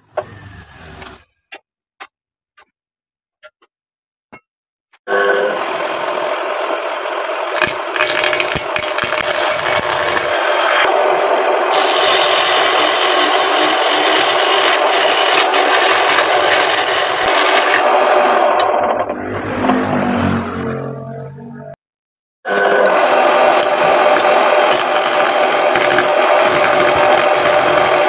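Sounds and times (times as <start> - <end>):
lathe motor whirring: 5.1 - 19.8, 22.5 - 28.0
cutting tool scraping wood: 7.5 - 10.4, 11.7 - 17.9, 23.5 - 28.0.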